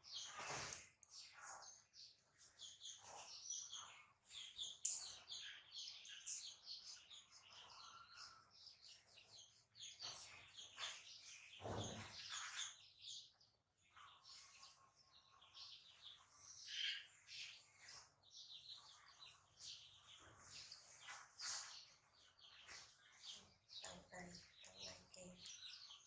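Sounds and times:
small birds chirping: 0.0 - 26.0
soft rustle: 17.7 - 23.5.

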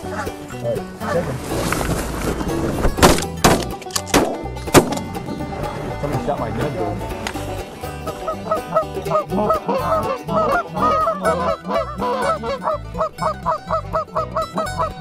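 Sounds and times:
geese honking: 0.0 - 1.8, 6.9 - 15.0.

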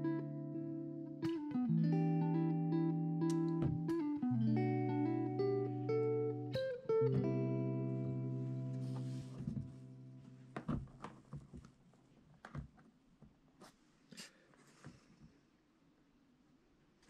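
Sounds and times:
strummed guitar chord: 1.3 - 10.2.

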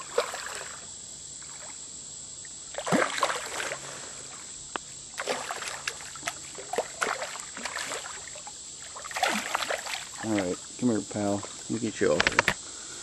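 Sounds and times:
fish thrashing and splashing in water: 0.0 - 0.8, 2.7 - 4.0, 5.1 - 10.6.

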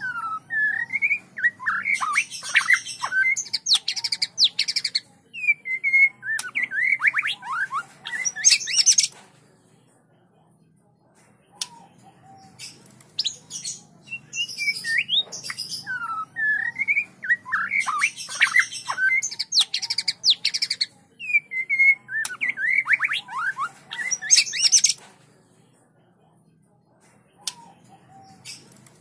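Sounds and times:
bird singing whistled song: 0.0 - 9.1, 14.0 - 25.0.

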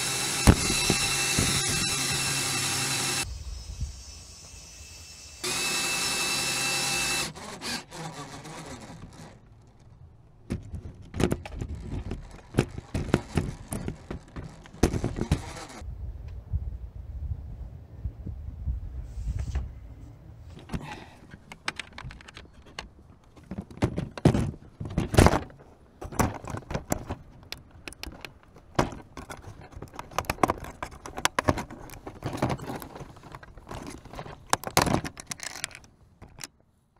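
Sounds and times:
plastic parts clattering: 7.9 - 15.8, 20.6 - 36.6.

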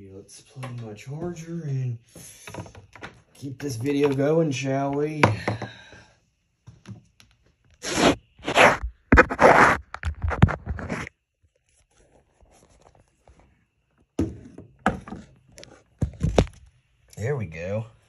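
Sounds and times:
phone handling scrapes: 7.8 - 11.2.

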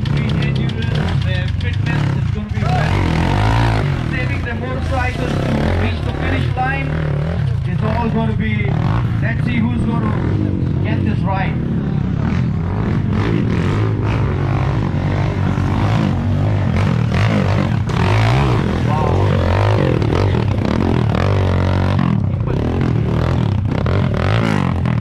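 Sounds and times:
dirt bike engine revving: 0.0 - 25.0
background voices: 17.6 - 21.2.

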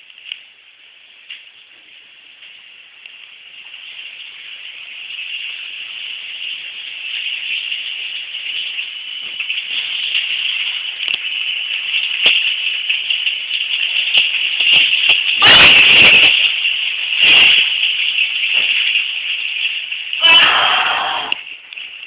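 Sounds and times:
shower water running: 0.0 - 22.0.

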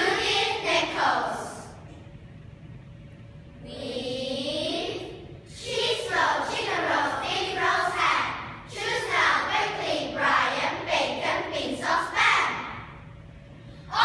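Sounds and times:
children reciting in unison: 5.6 - 12.6.

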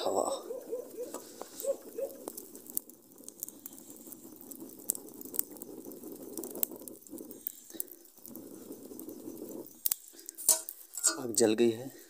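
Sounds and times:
fire crackling: 0.0 - 12.0.

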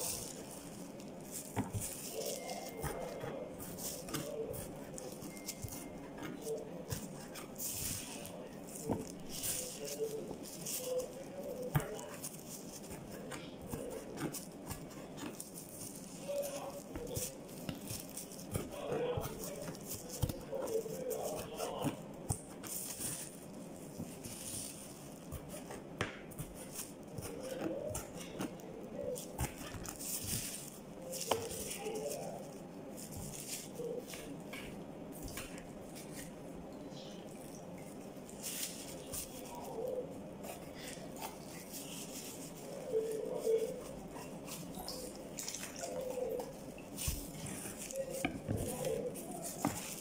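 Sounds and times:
knife chopping on plastic board: 11.5 - 23.3.

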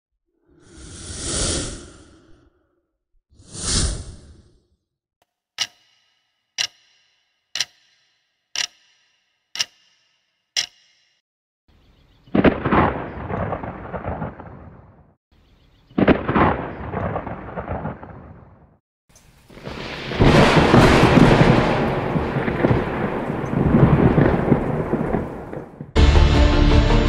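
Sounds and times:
sharp clock-like ticks: 5.6 - 11.2
thunder rolling: 12.3 - 14.9, 16.0 - 18.5, 19.5 - 26.0.

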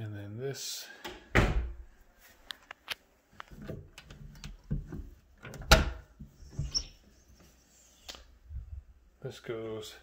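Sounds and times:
door squeak: 5.7 - 7.0.

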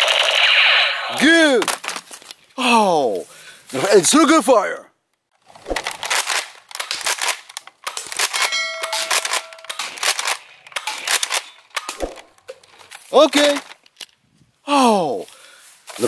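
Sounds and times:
toy blaster clacks and pops: 0.0 - 1.8
bell-like ding: 8.5 - 9.7.

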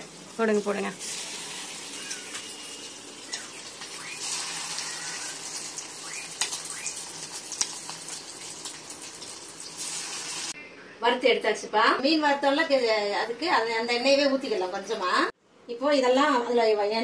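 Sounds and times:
fish deep-frying in oil: 0.0 - 10.6
oil popping and crackling: 1.0 - 10.6.

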